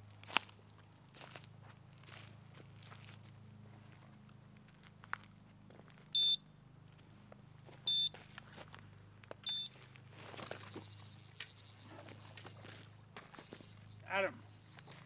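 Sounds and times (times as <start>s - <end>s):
bite alarm beeping: 6.2s - 6.4s, 7.9s - 8.1s, 9.4s - 9.8s
rustling and scraping: 9.7s - 15.0s.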